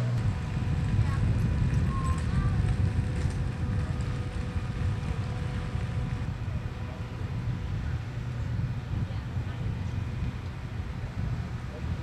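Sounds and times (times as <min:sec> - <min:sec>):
faint steady hum: 0:00.0 - 0:12.0
low outdoor rumble: 0:00.0 - 0:12.0.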